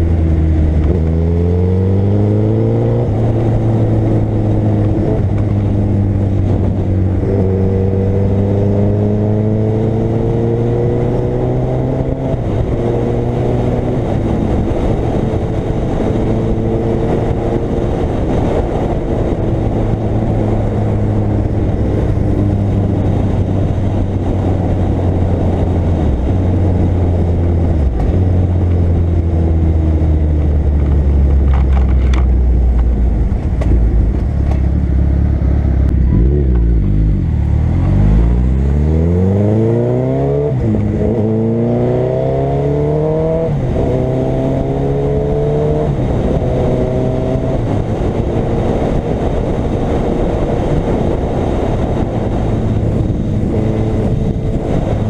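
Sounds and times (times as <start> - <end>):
motorcycle engine accelerating: 0.0 - 55.0
wind rush: 0.0 - 55.0.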